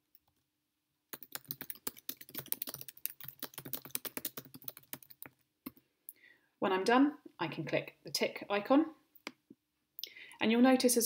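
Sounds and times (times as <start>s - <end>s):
typing on computer keyboard: 1.1s - 5.8s.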